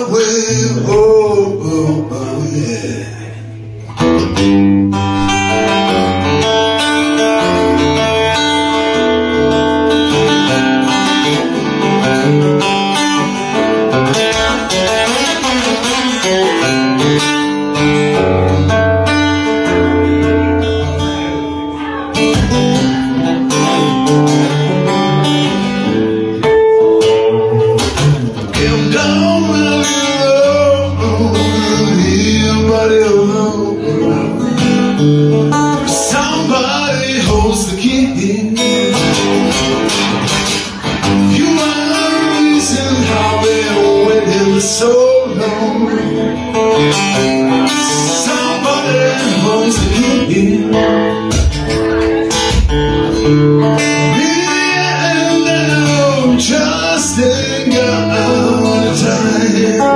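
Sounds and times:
man singing: 0:00.0 - 0:04.4, 0:19.1 - 0:59.9
acoustic guitar strummed and picked: 0:00.0 - 0:59.9.

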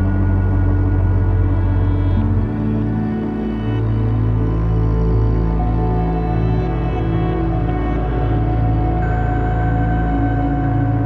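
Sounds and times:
dark ambient music: 0:00.0 - 0:11.0.

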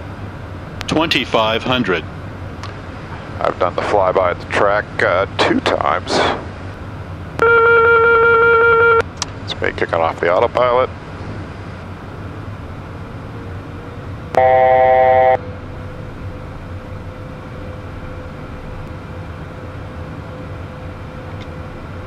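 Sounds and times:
jet cabin noise: 0:00.0 - 0:22.0
electronic cockpit alert tone: 0:07.4 - 0:09.0, 0:14.3 - 0:15.4.

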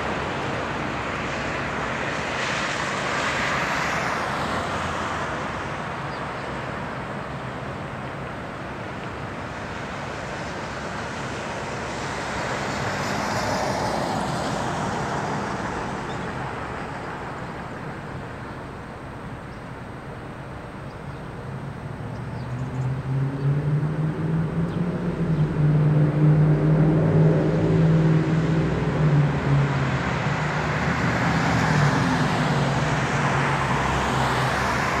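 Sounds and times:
traffic noise: 0:00.0 - 0:35.0
truck diesel engine passing: 0:22.7 - 0:35.0.

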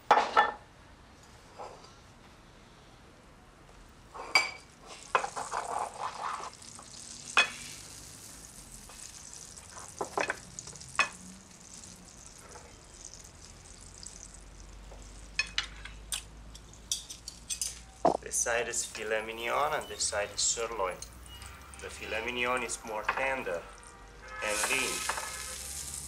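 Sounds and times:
steak sizzling on platter: 0:04.8 - 0:15.8, 0:16.8 - 0:26.0.

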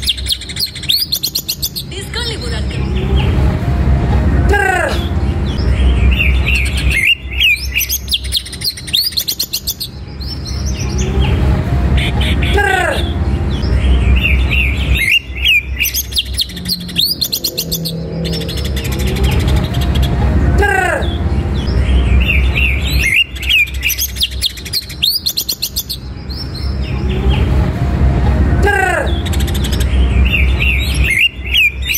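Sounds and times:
bird singing: 0:00.0 - 0:03.7, 0:04.4 - 0:27.7, 0:28.6 - 0:31.9
low steady rumble: 0:01.9 - 0:07.7, 0:16.0 - 0:23.4, 0:26.0 - 0:31.1.

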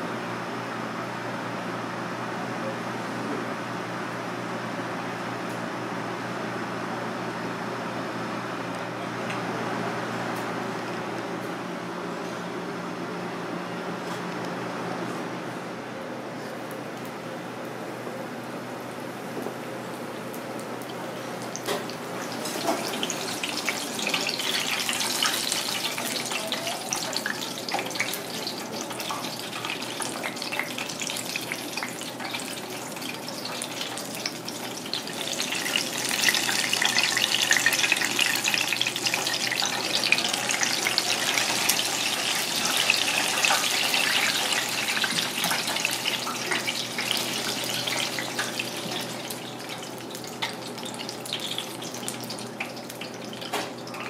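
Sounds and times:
oil sizzling in deep fryer: 0:20.2 - 0:54.0.

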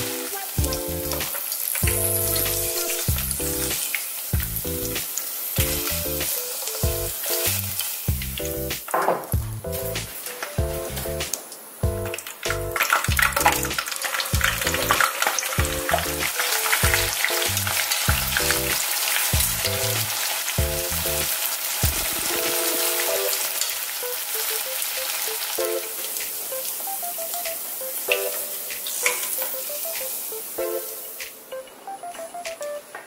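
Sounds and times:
tofu deep-frying in oil: 0:00.0 - 0:31.2
background music: 0:00.0 - 0:33.0.

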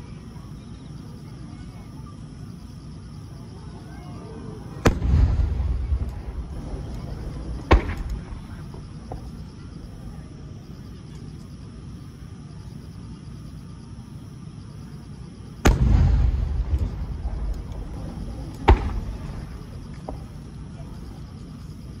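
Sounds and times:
firework shells bursting: 0:04.8 - 0:09.5, 0:15.6 - 0:20.5.

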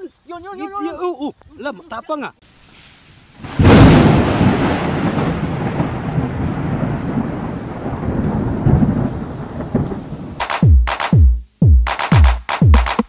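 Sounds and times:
rain-like hiss: 0:00.0 - 0:12.7
rolling rumble of thunder: 0:03.4 - 0:10.4
electronic music with kick drums: 0:10.4 - 0:13.0.

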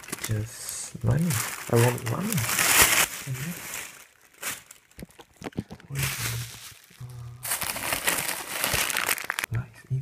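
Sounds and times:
bubble wrap rustling and crinkling: 0:00.0 - 0:09.5.

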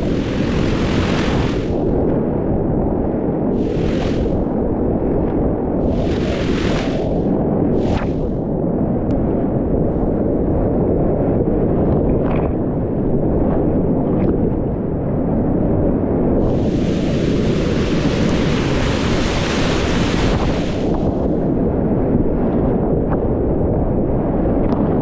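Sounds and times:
spray and foam hissing: 0:03.6 - 0:04.3, 0:05.8 - 0:07.1, 0:16.4 - 0:20.9.

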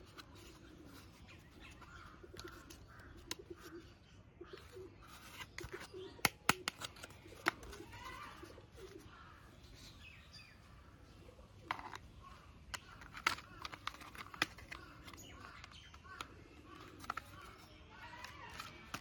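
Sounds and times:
plastic toy parts clicking: 0:05.1 - 0:08.2, 0:11.7 - 0:19.0.

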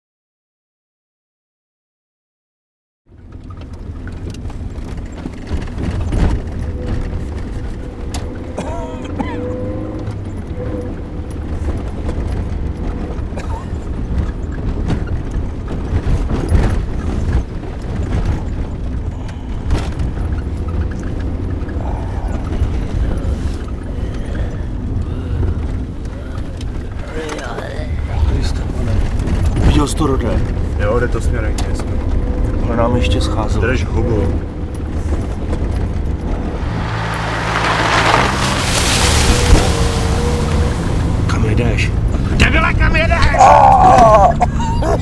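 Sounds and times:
car engine and road rumble: 0:03.1 - 0:45.0
knocks and rattles from bumps: 0:03.2 - 0:08.5, 0:11.2 - 0:21.8.

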